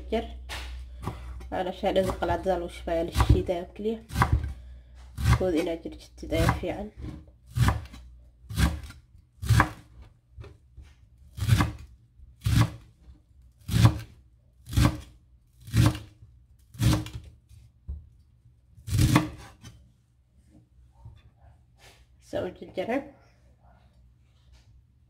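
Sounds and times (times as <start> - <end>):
knife chopping on wooden board: 0.5 - 2.5, 3.1 - 4.6, 5.2 - 5.7, 6.4 - 10.6, 11.4 - 11.8, 12.4 - 12.8, 13.7 - 14.1, 14.7 - 16.1, 16.7 - 17.3, 18.9 - 19.7.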